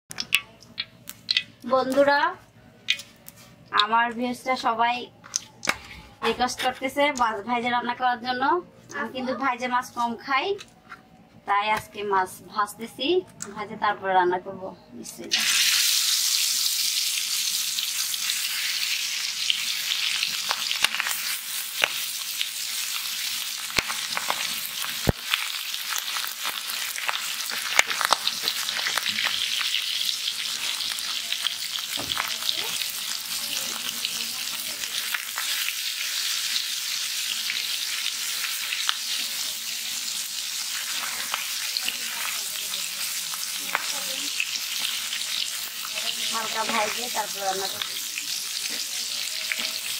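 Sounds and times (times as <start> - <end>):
sharp pops and clicks: 0.1 - 2.0, 2.8 - 4.0
fish sizzling in hot oil: 0.2 - 2.0, 15.3 - 49.9.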